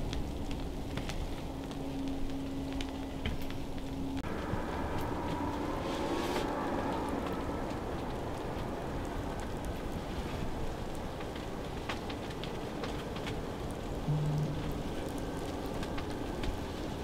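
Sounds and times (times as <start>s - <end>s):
low rumble: 14.0s - 16.6s.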